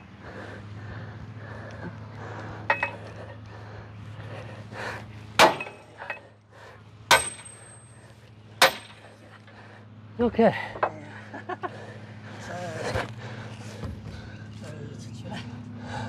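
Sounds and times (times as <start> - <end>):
steady low hum: 0.0 - 16.0
hammer striking metal: 5.4 - 6.2, 7.1 - 7.9, 8.6 - 9.1.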